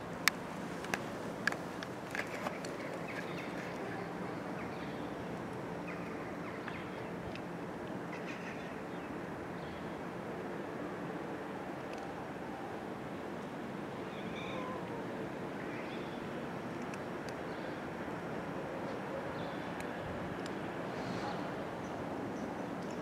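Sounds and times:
outdoor background noise: 0.0 - 23.0
faint bird chirps: 14.1 - 14.8.

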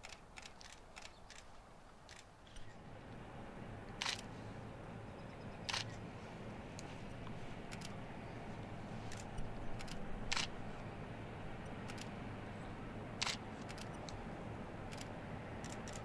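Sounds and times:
faint low rumble: 2.5 - 16.0
camera shutter clicking: 4.0 - 4.3, 5.7 - 5.9, 9.1 - 10.6, 13.2 - 14.0, 14.9 - 16.0.

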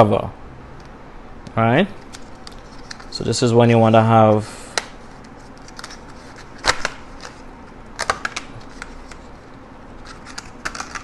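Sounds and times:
plastic packaging clicking and crackling: 5.6 - 9.3, 10.0 - 11.0.

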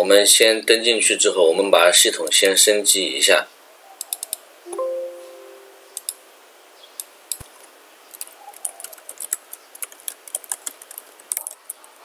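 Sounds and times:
mouse clicks: 4.0 - 4.4, 5.9 - 6.2
electronic chime: 4.7 - 6.0
keyboard keystrokes: 8.2 - 11.8.

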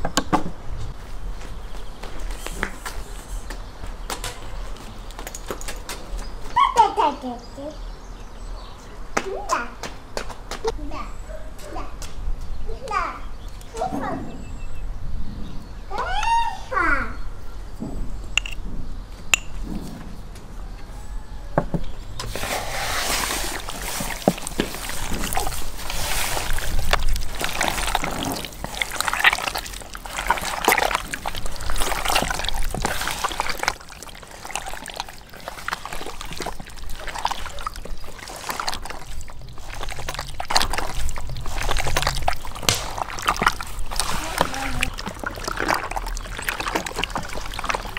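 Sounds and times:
hands squelching raw chicken: 22.2 - 47.9.

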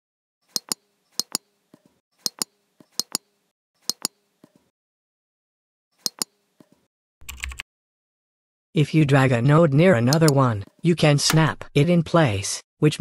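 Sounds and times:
computer mouse button clicking: 0.5 - 1.4, 2.2 - 3.3, 3.9 - 4.2, 6.0 - 6.4.

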